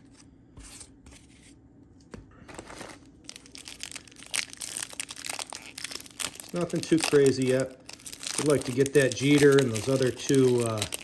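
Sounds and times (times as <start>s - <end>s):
wrapper crinkling and tearing: 2.6s - 11.0s.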